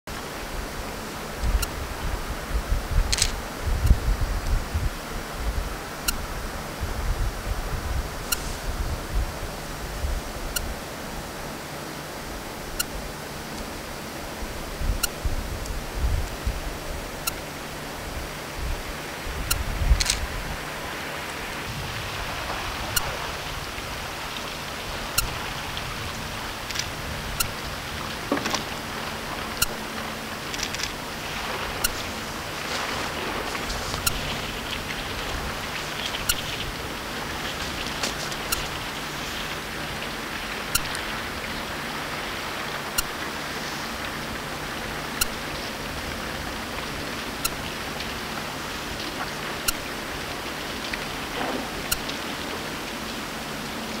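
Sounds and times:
water rushing wash: 0.1s - 54.0s
sharp click: 3.1s - 3.4s.

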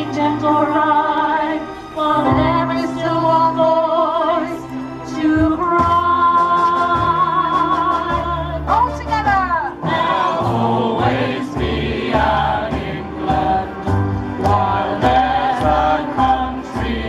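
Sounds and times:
musical accompaniment with bass line: 0.0s - 17.0s
group singing through a pa: 9.8s - 17.0s.

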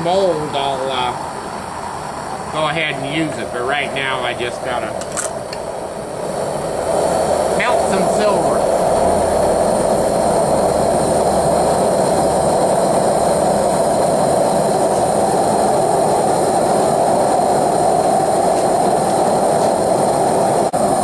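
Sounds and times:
propane burner roaring: 0.0s - 21.0s.

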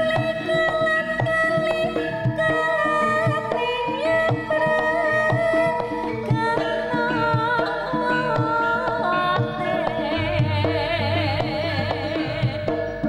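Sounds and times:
drum beats: 0.0s - 13.0s
wavering melody: 0.0s - 13.0s.

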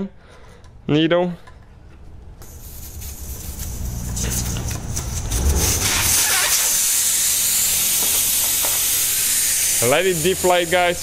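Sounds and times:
air hissing from tyre valve: 2.4s - 11.0s.

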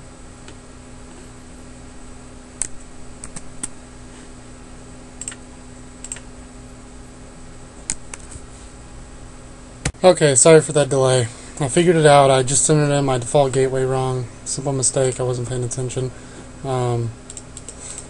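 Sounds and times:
electrical hum and hiss: 0.0s - 18.0s
keyboard and mouse clicks: 2.6s - 3.7s, 5.2s - 5.4s, 6.0s - 6.3s, 7.9s - 8.4s, 17.3s - 18.0s.

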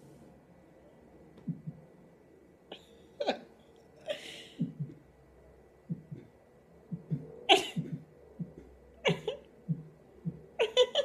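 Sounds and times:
woman's stifled laughter: 9.1s - 9.4s, 10.6s - 11.0s.

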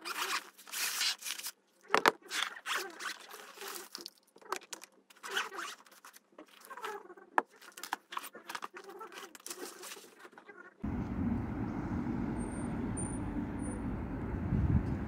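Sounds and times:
street traffic rumble: 10.8s - 15.0s.

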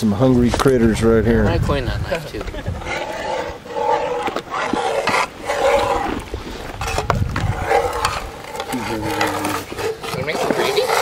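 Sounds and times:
people making drawn-out vocal sounds: 2.6s - 8.7s.

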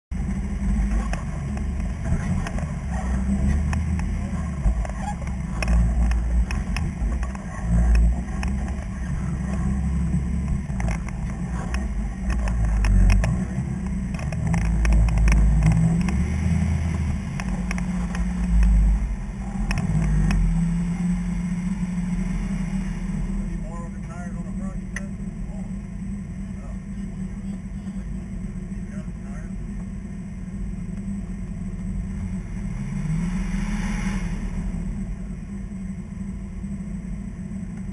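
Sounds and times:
off-road vehicle engine rumble: 0.0s - 37.9s
sharp knocks and clatters: 0.8s - 18.8s.

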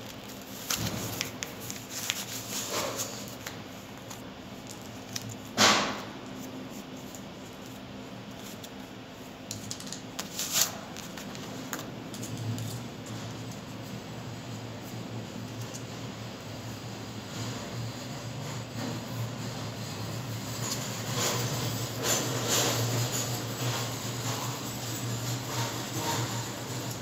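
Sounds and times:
clicks and rustles of hands: 0.0s - 13.7s.

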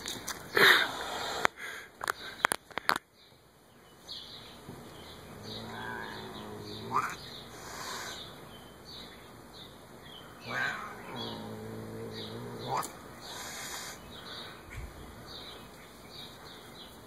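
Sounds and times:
cat growling: 4.7s - 8.2s, 10.4s - 14.0s
cat hissing: 5.3s - 8.4s, 10.4s - 14.1s
cat yowling: 5.5s - 7.2s, 10.5s - 12.9s.

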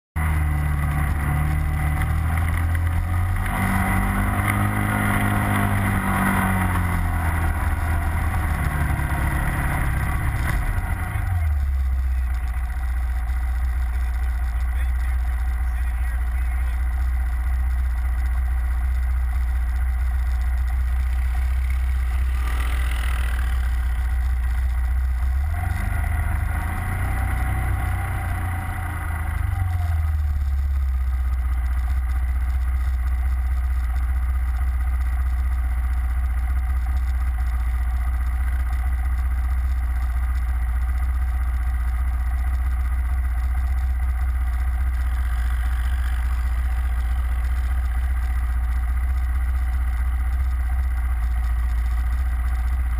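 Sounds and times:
atv driving past: 0.2s - 12.8s, 21.0s - 24.8s, 25.5s - 30.1s
atv engine idling: 0.2s - 52.9s.

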